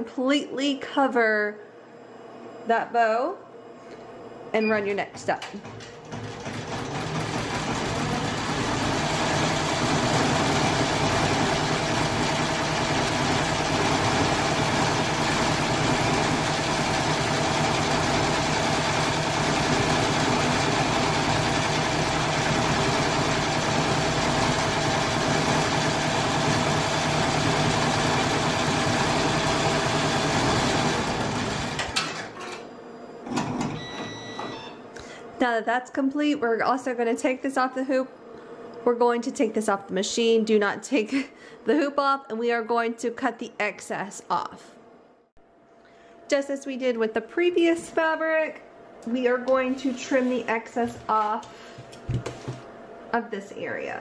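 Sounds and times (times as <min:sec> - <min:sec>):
embroidery machine stitching: 0:05.6 - 0:32.4.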